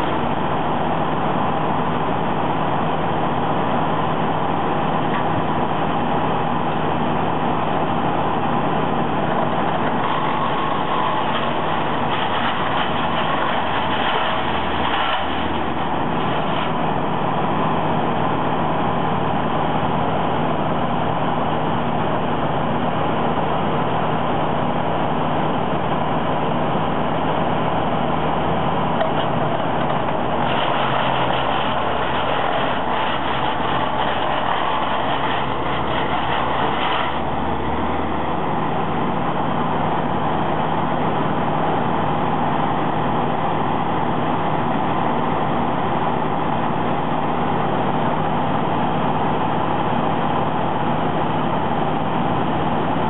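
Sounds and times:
wood chipper engine running: 0:00.0 - 0:53.0
branches crackling through chipper: 0:09.1 - 0:17.3, 0:28.8 - 0:39.2.

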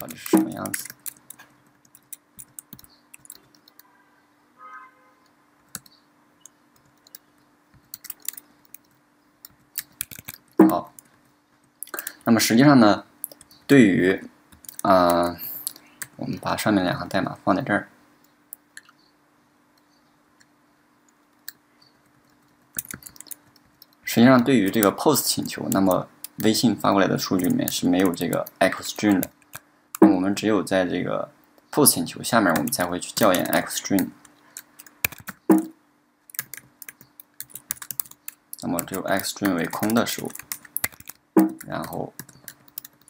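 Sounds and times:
keyboard keystrokes clicking: 0:00.0 - 0:03.8, 0:07.8 - 0:11.1, 0:22.8 - 0:24.0, 0:32.5 - 0:35.7, 0:36.3 - 0:43.0
faint steady hum: 0:00.0 - 0:43.0.

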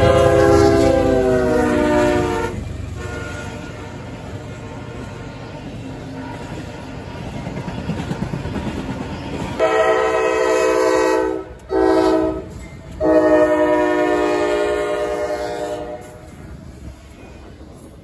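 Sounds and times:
locomotive air horn: 0:00.0 - 0:05.2, 0:09.6 - 0:16.3
freight train rolling on rails: 0:00.0 - 0:18.0.

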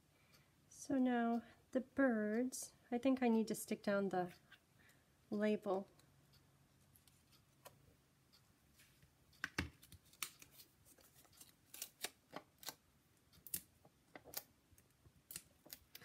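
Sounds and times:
paper handling clicks and taps: 0:09.4 - 0:12.8.

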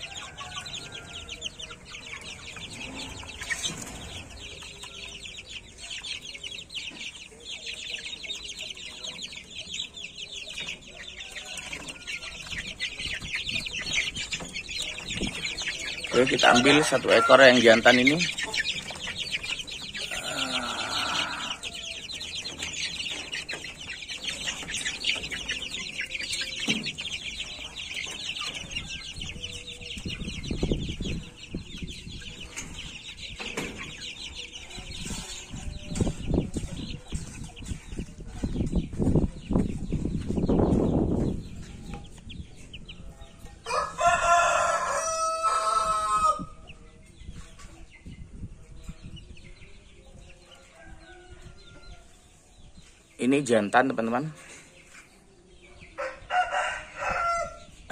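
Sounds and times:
chicks peeping: 0:00.0 - 0:57.9
long loud chicken call: 0:20.0 - 0:22.0, 0:43.7 - 0:46.5.

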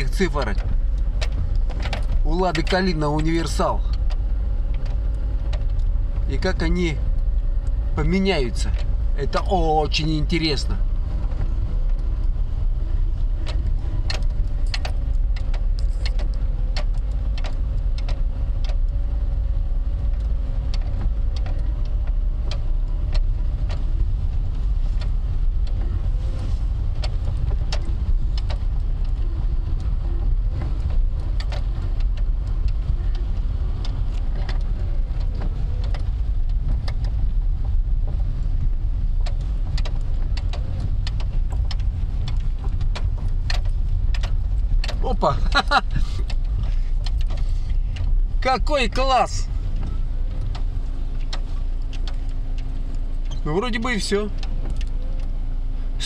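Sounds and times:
engine and road rumble: 0:00.0 - 0:56.0
small clicks and rattles: 0:00.0 - 0:56.0.

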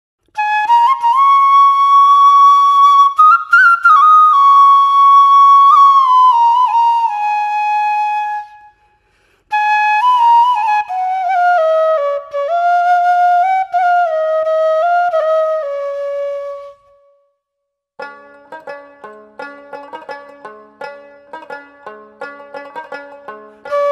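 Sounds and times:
solo instrumental melody: 0:18.0 - 0:23.9.

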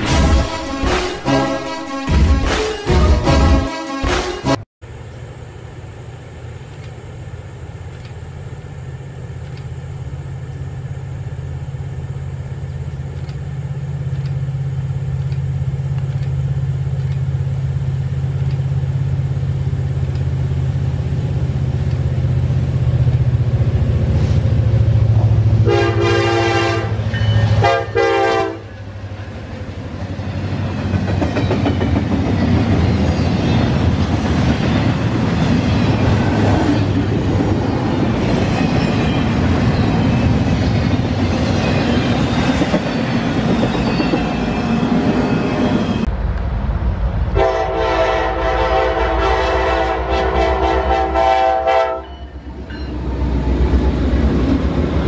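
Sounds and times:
train horn blasts: 0:00.0 - 0:04.6, 0:25.6 - 0:28.9, 0:47.3 - 0:52.4
diesel locomotive engine drone: 0:00.0 - 0:55.0
train wheels clattering on rails: 0:29.2 - 0:46.4.

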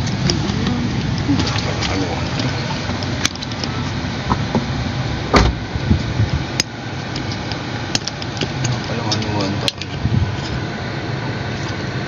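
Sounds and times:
car cabin engine and road noise: 0:00.0 - 0:12.0
thump: 0:05.3 - 0:05.6.

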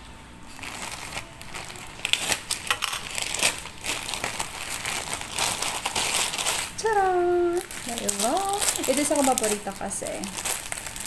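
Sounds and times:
plastic pouch crinkling: 0:00.5 - 0:11.0.

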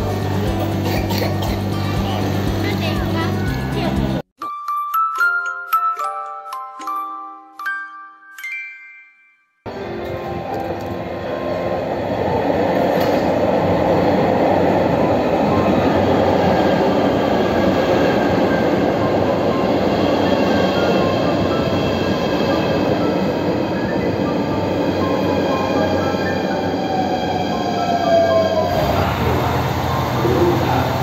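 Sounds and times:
high-pitched train whines: 0:09.7 - 0:31.0
train wheels rumbling on rails: 0:09.7 - 0:31.0.

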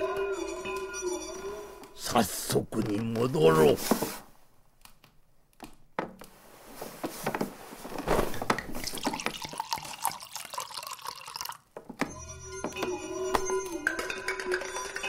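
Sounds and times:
music with held tone: 0:00.0 - 0:02.0, 0:12.1 - 0:15.0
liquid pouring into glass: 0:08.9 - 0:11.7.

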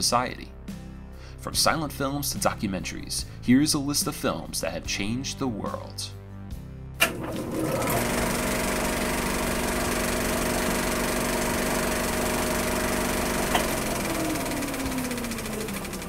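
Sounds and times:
projector click: 0:07.0 - 0:07.5
film projector whirring: 0:07.0 - 0:16.0.

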